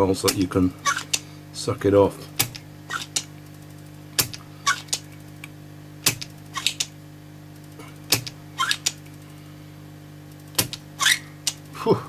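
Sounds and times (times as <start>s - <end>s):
steady low hum: 0.0s - 12.0s
solder sucker snapping: 0.2s - 1.2s, 2.4s - 3.3s, 4.2s - 7.0s, 8.1s - 9.2s, 10.4s - 11.7s.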